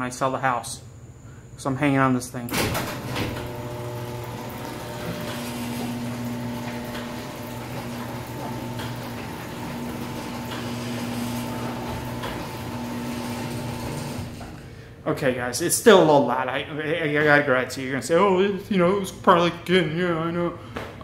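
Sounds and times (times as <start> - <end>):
garage door opener motor running: 2.5 - 14.7.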